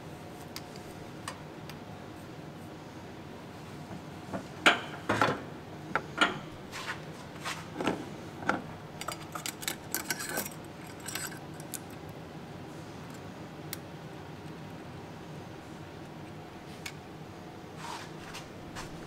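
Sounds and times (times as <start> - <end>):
metal parts clinking and knocking: 9.0 - 11.8.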